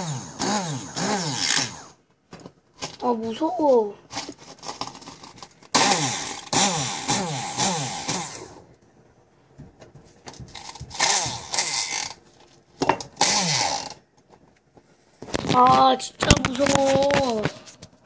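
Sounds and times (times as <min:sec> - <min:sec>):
stick blender grinding crackers: 0:00.0 - 0:02.0, 0:02.8 - 0:08.7, 0:10.3 - 0:14.1.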